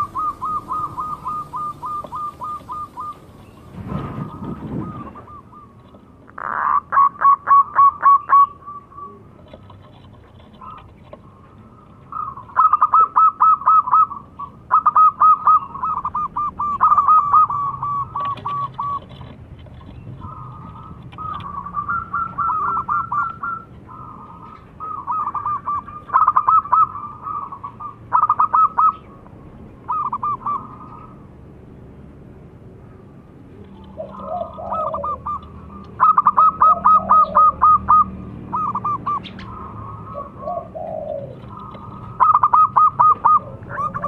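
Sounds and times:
dove cooing: 0.0 - 29.2, 29.8 - 31.3, 33.6 - 44.0.

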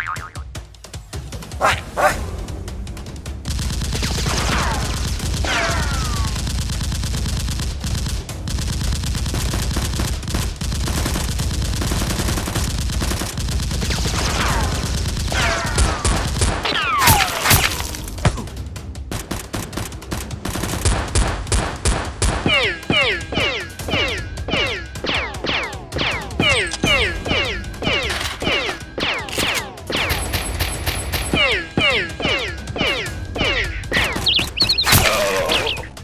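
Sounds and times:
automatic gunfire effects: 3.4 - 17.9.

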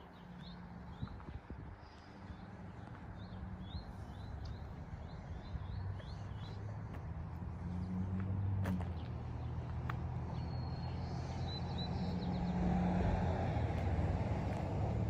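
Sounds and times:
birds chirping: 0.0 - 8.2, 8.9 - 12.9
low engine hum: 0.0 - 15.0.

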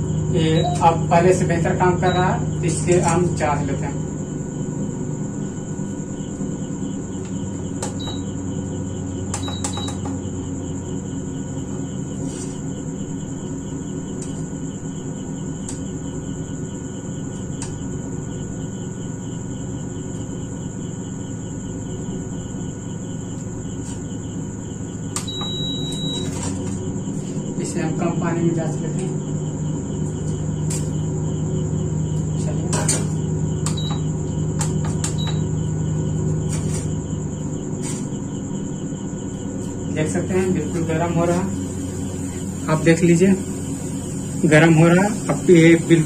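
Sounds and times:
cooktop fan humming: 0.0 - 46.0
thin high whine: 0.0 - 46.0
touch panel beeps: 0.5 - 1.0, 9.4 - 10.0, 25.2 - 26.4, 33.7 - 34.0, 35.1 - 35.5.

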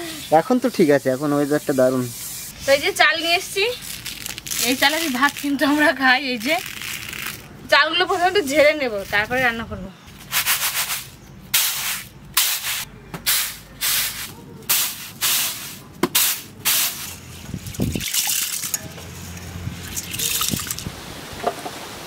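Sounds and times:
water splashing and trickling: 17.2 - 22.0.

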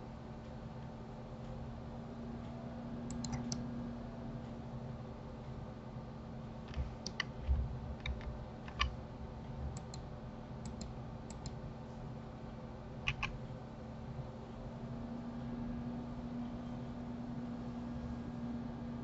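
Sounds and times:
low hum: 1.5 - 5.4
mouse and keyboard clicks: 3.1 - 3.6, 6.7 - 9.0, 9.8 - 10.0, 13.1 - 13.4.

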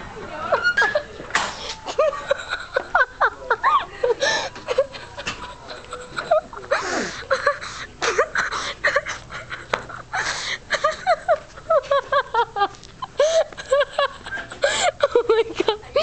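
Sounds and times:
girls laughing and giggling: 0.0 - 16.0
breathy gasps: 4.2 - 4.6.

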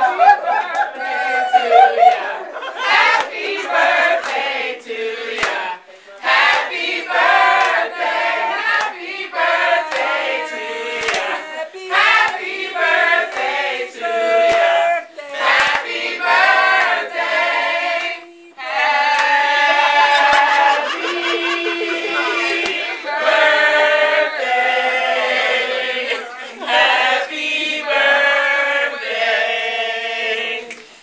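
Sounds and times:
group singing: 0.0 - 31.0
hand claps: 4.2 - 4.5, 5.4 - 5.6, 7.4 - 7.9, 8.7 - 9.0, 9.8 - 10.2, 11.0 - 11.4, 13.3 - 13.6, 14.4 - 14.7, 15.5 - 16.0, 19.0 - 19.5, 30.7 - 31.0.

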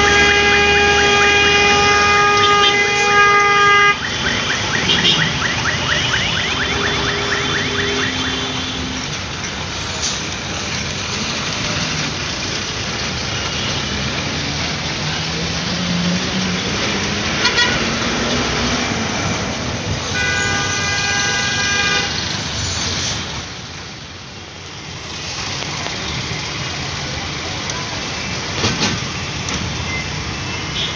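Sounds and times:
car horn: 0.0 - 9.1, 17.4 - 17.9, 20.1 - 22.2, 30.5 - 30.9
road traffic roar: 0.0 - 30.9.

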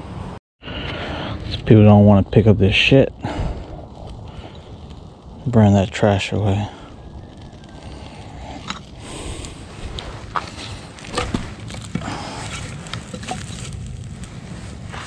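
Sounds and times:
low steady rustle: 3.5 - 15.0
footsteps on rocky ground: 8.6 - 15.0.

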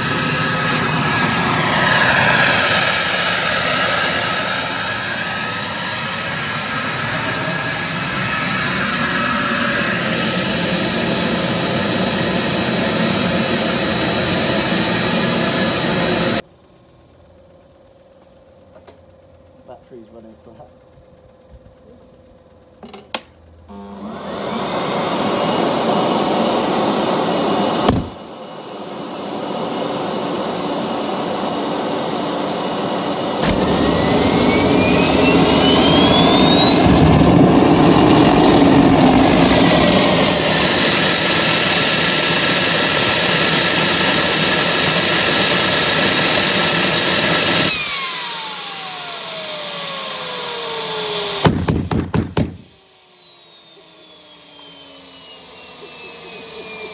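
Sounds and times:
turbine rumbling rush: 0.0 - 16.4, 23.7 - 50.6
turbo whine: 0.0 - 56.9
thump: 27.8 - 28.2, 33.4 - 33.8, 51.4 - 52.6.

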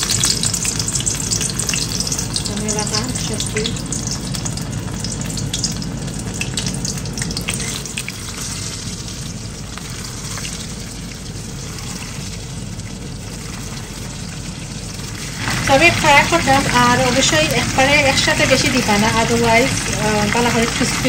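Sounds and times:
prawns sizzling in hot oil: 0.0 - 21.0.

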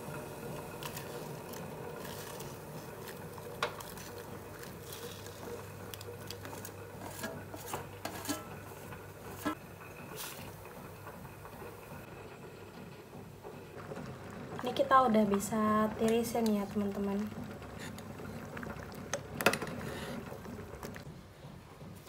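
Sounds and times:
boiling water hissing: 0.0 - 22.0
potatoes pushed into pot: 0.8 - 9.6.

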